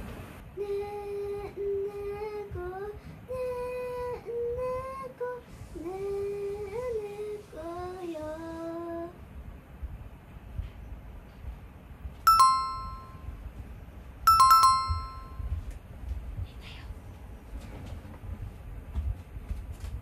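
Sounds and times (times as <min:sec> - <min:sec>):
girl singing a lullaby: 0:00.4 - 0:09.3.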